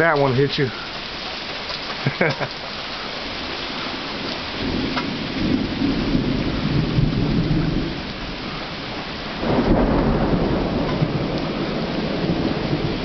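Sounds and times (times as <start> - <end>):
steady rain: 0.0 - 13.0
rolling thunder: 3.3 - 13.0.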